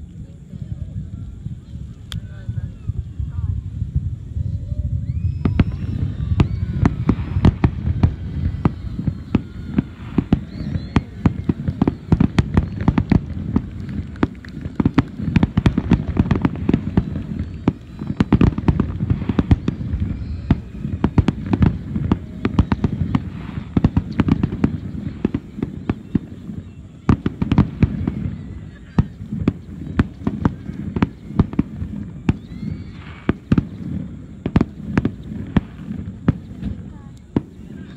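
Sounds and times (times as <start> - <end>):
low rumble: 0.0 - 25.2
fireworks bursting: 0.0 - 37.9.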